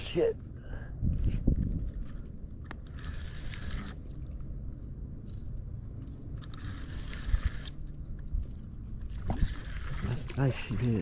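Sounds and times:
wind rumbling on microphone: 0.7 - 4.3.

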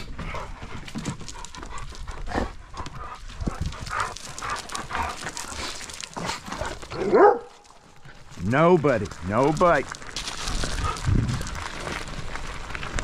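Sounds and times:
dog panting: 0.2 - 7.4.

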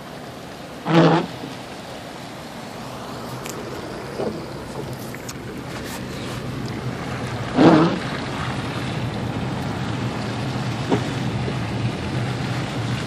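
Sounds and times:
car driving cabin rumble: 2.8 - 13.0.

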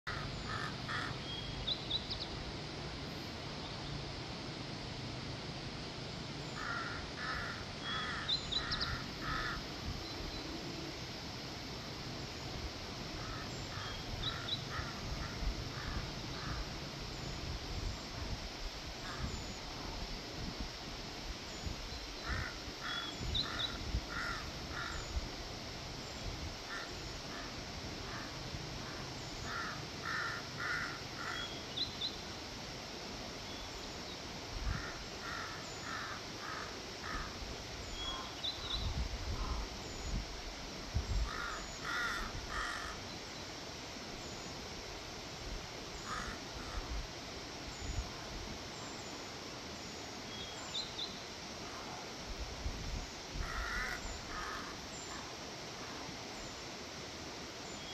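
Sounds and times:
steady background hiss: 0.0 - 57.9
crows cawing: 0.1 - 1.2, 6.6 - 9.7, 13.2 - 16.6, 22.2 - 25.0, 26.7 - 31.5, 34.7 - 37.4, 41.3 - 43.0, 46.1 - 46.8, 53.4 - 55.3.

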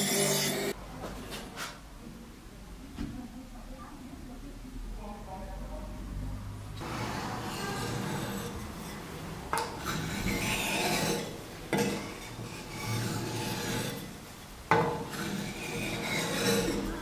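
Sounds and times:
blade scraping on whetstone: 0.0 - 0.8, 6.8 - 17.0.

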